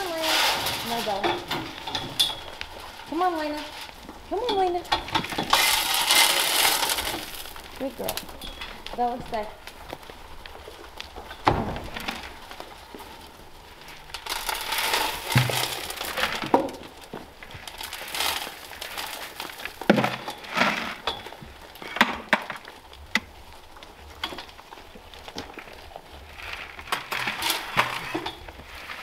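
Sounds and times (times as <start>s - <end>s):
clinks and rattles of metal trough: 0.0s - 2.7s
goats crunching grain: 0.0s - 29.0s
feed poured from metal can: 5.5s - 7.6s.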